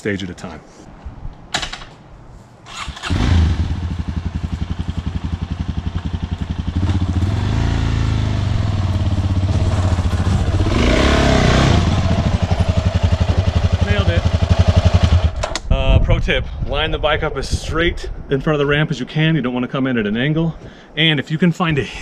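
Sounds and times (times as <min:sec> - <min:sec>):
dirt bike engine: 0:02.7 - 0:15.5.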